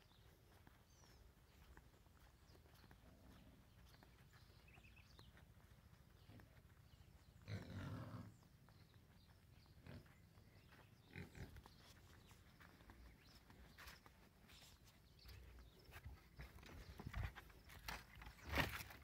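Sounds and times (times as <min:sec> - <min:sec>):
footsteps on dirt: 0:00.0 - 0:19.0
farm animal low call: 0:07.3 - 0:08.8.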